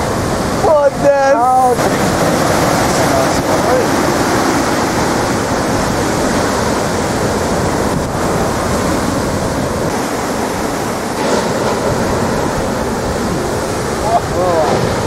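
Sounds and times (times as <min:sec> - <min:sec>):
heavy ocean surf: 0:00.0 - 0:15.0.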